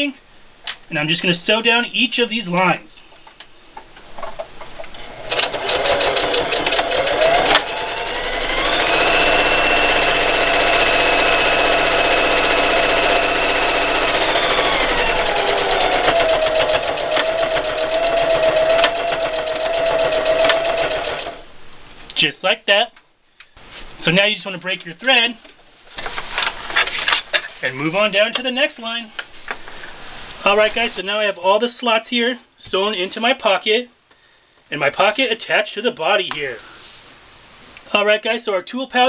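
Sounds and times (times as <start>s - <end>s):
electric sewing machine stitching: 5.0s - 21.4s.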